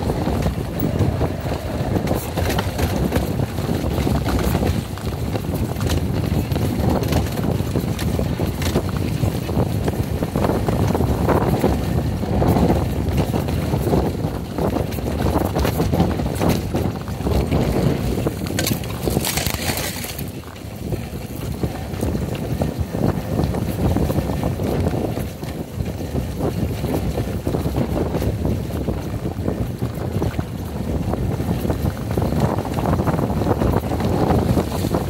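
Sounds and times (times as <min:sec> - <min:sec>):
knocks and rattles: 0:00.0 - 0:11.8
motorcycle engine running: 0:00.0 - 0:35.0
wind buffeting microphone: 0:00.0 - 0:35.0.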